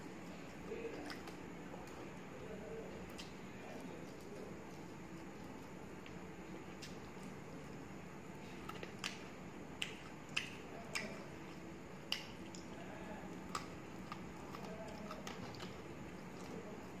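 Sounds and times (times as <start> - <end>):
person chewing food: 0.0 - 17.0
wet mouth clicks and lip smacks: 9.8 - 11.2, 12.1 - 12.7.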